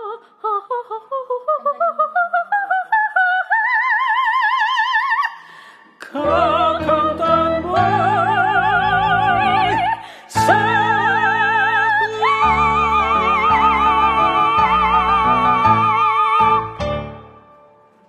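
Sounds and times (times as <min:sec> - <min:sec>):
woman singing operatically: 0:00.0 - 0:05.4, 0:06.0 - 0:16.8
man singing: 0:06.0 - 0:16.8
piano chords: 0:06.2 - 0:18.0.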